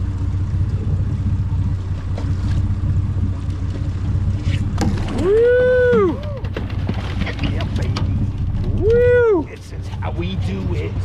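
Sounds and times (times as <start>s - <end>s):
boat engine idling: 0.0s - 11.0s
loud long shout: 5.2s - 6.4s, 8.8s - 9.5s.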